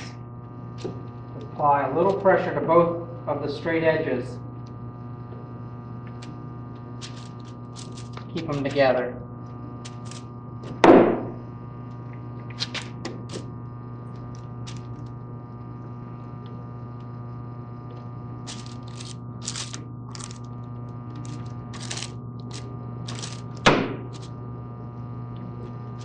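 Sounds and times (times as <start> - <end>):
steady electrical hum: 0.0 - 26.0
loud thunk: 10.8 - 11.3, 23.6 - 24.1.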